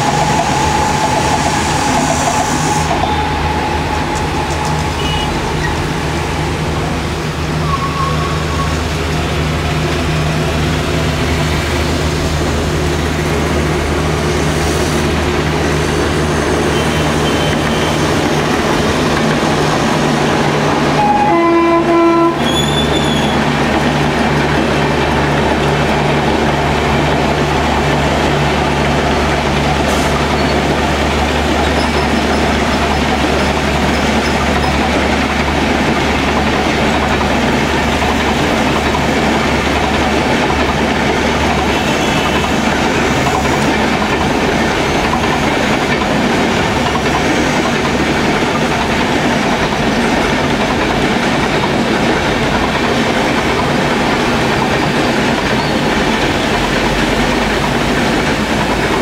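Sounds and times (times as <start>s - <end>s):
train horn: 0.0s - 6.9s, 20.9s - 23.3s, 41.6s - 42.6s
locomotive hauling coaches: 0.0s - 59.0s
train rumbling past: 0.0s - 59.0s.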